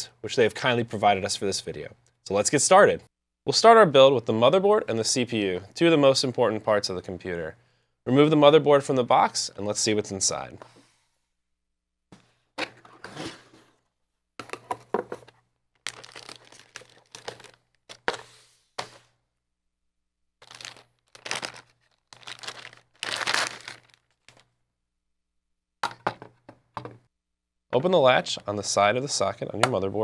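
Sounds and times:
plastic and cardboard crinkling: 14.4s - 19.0s, 20.4s - 24.5s.

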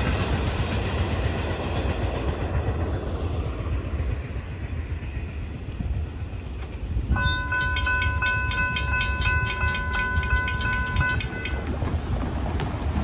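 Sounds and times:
crossing bell ringing rapidly: 7.1s - 11.8s.

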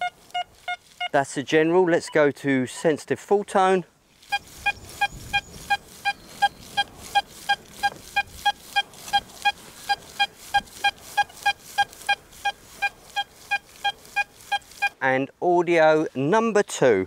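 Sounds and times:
metal detector short beeps: 0.0s - 1.2s, 4.3s - 15.0s.

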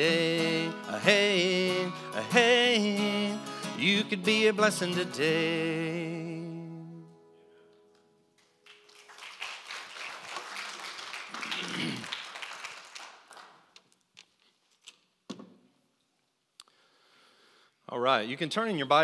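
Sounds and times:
acoustic guitar chord ringing: 0.0s - 7.6s
audience applause: 8.6s - 13.7s.

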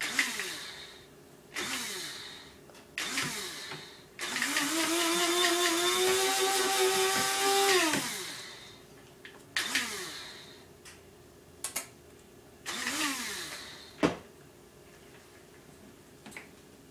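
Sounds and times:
coffee grinder motor whirring: 0.0s - 0.9s, 1.6s - 2.4s, 3.0s - 8.7s, 9.6s - 10.5s, 12.7s - 14.0s.

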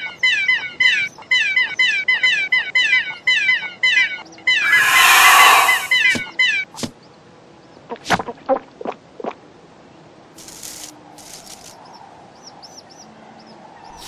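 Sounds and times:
cartoon bird chirps: 4.5s - 6.1s
brief hissing rustles: 4.6s - 6.0s.

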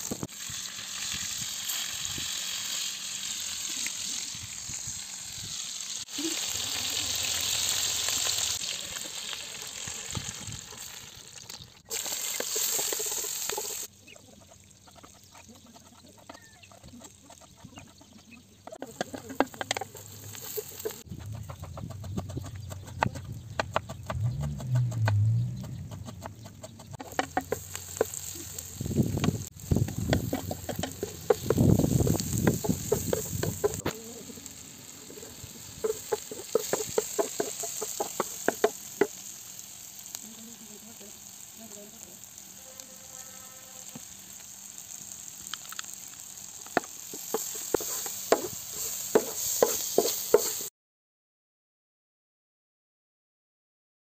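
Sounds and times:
vegetables sizzling in a pan: 0.0s - 21.1s, 27.0s - 50.7s
wooden spatula scraping metal pan: 11.9s - 13.9s, 18.7s - 34.4s, 35.0s - 39.4s, 46.7s - 50.7s
chickens clucking: 12.3s - 39.2s.

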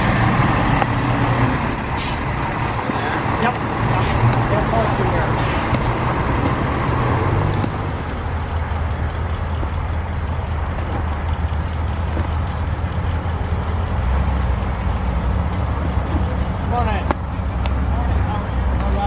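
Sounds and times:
cars driving slowly past: 0.0s - 19.0s.

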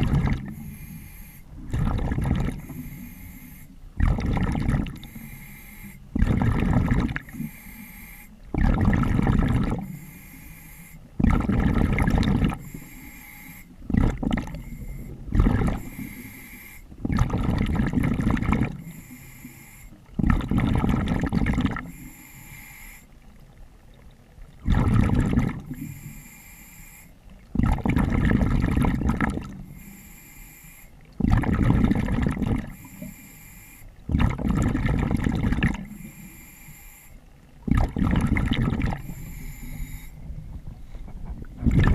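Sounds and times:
diver exhaust bubbles gurgling: 0.0s - 0.8s, 1.5s - 3.2s, 3.9s - 5.3s, 6.1s - 7.6s, 8.4s - 10.0s, 11.1s - 12.8s, 13.8s - 16.2s, 16.9s - 18.9s, 20.1s - 22.1s, 24.1s - 25.9s, 27.4s - 29.8s, 31.1s - 33.2s, 34.0s - 36.2s, 37.5s - 41.9s
breaths through regulator: 0.0s - 23.1s, 24.7s - 41.9s.

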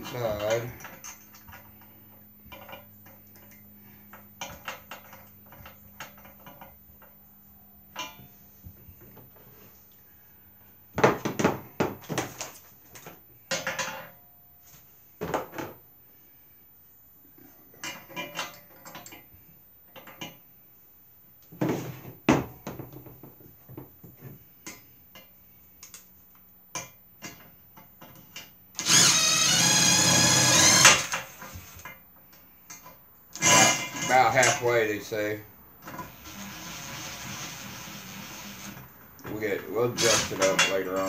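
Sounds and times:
cordless drill running: 28.8s - 31.4s, 33.4s - 34.0s, 36.1s - 38.8s, 40.0s - 40.4s.

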